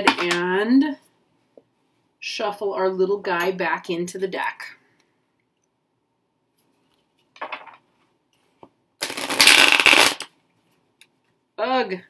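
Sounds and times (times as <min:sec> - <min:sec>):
cards being shuffled: 0:07.4 - 0:07.8.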